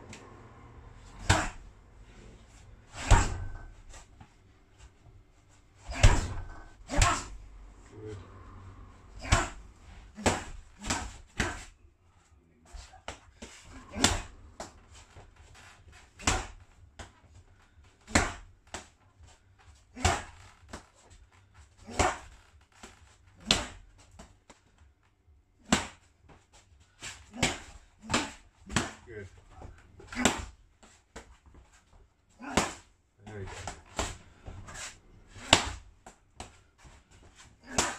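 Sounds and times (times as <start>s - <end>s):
strikes slapping and thudding on body: 1.0s - 1.8s, 2.9s - 4.3s, 5.8s - 7.4s, 9.2s - 11.7s, 13.0s - 15.3s, 15.9s - 17.3s, 18.0s - 19.0s, 19.9s - 21.0s, 21.8s - 24.7s, 25.6s - 26.5s, 27.1s - 37.9s.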